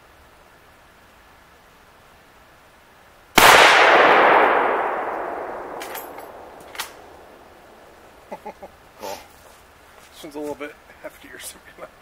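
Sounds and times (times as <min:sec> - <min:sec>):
rolling echo of gunshot: 0:03.4 - 0:07.6
rifle shot: 0:03.4 - 0:07.8.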